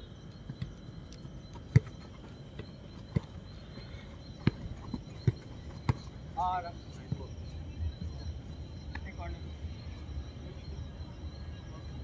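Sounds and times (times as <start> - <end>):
football kick thuds: 1.6 - 3.4, 4.4 - 6.1.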